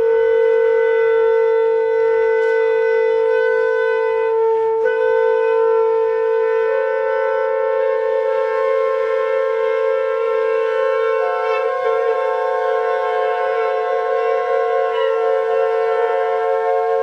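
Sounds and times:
sustained chord of tones: 11.2 - 17.0.

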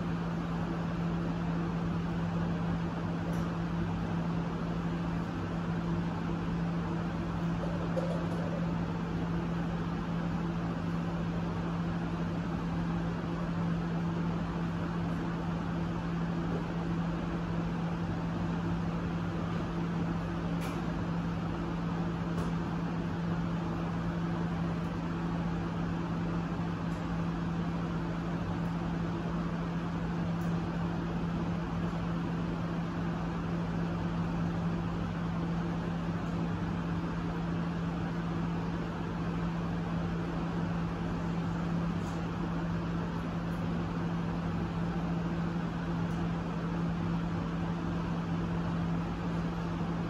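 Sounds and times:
machine hum: 0.0 - 50.0.

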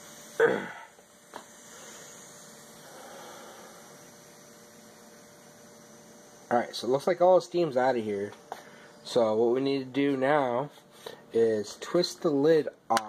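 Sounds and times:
steam hissing from valve: 0.0 - 12.4.

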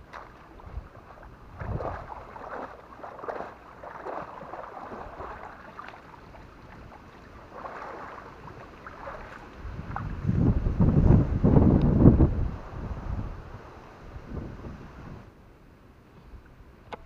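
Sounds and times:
water splashing and sloshing: 0.0 - 11.9.

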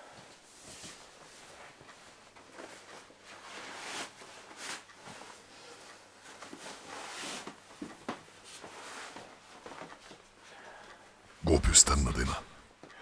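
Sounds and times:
bedclothes rustling: 0.2 - 10.5.

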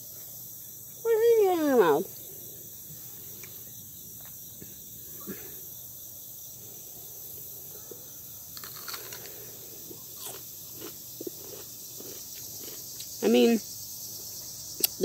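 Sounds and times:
high insect drone: 0.0 - 15.0
crunchy chewing of pepper: 7.8 - 13.2, 14.4 - 15.0.

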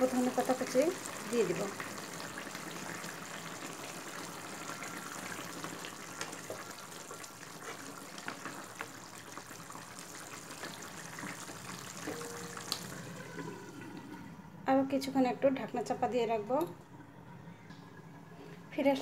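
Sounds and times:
curry bubbling in pan: 0.0 - 14.4.

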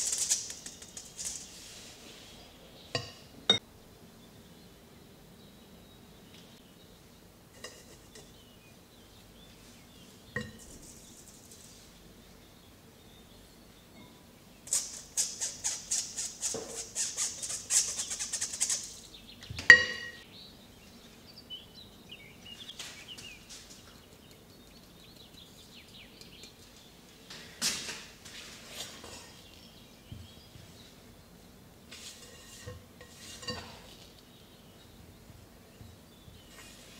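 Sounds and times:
utensil strokes in a bowl: 0.0 - 2.5, 14.7 - 19.1, 31.9 - 34.2, 36.4 - 36.9.

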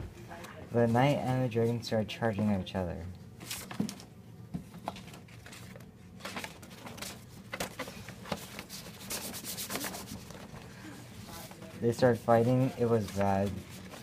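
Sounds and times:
paper and cardboard rustling: 3.4 - 4.1, 4.7 - 14.0.

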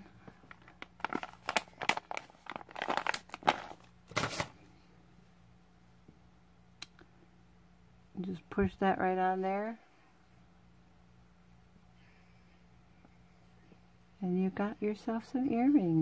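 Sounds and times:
plastic bag crinkling: 0.2 - 4.6.

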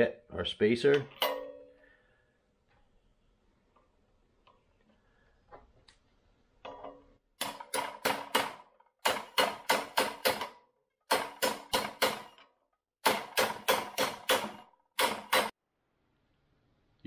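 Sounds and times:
hammer striking metal socket: 0.9 - 1.7.

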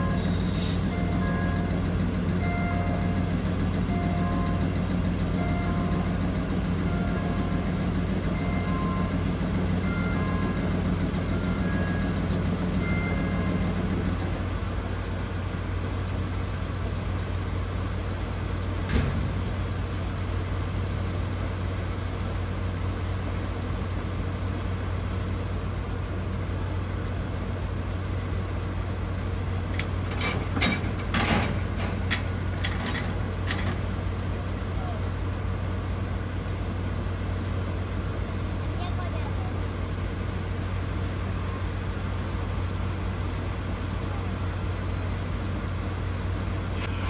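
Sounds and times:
diesel engine idling: 0.0 - 47.0
sharp clanks and knocks: 29.7 - 33.9.

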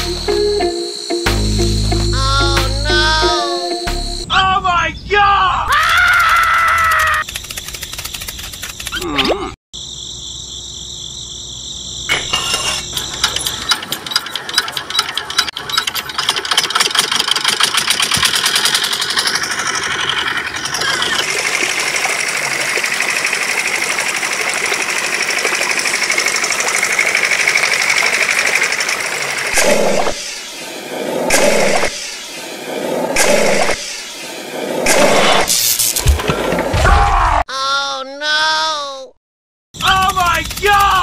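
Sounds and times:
small engine chugging: 7.0 - 9.0, 12.8 - 29.6
water gushing: 19.6 - 32.0.

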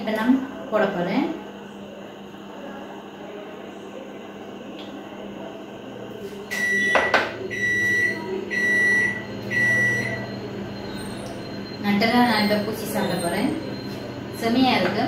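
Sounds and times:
electronic timer beeping: 6.5 - 14.4.

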